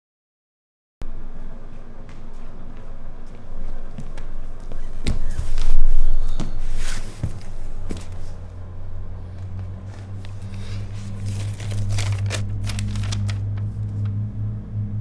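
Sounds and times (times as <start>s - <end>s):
steady low hum: 1.0s - 15.0s
paper rustling and crackling: 9.4s - 14.2s.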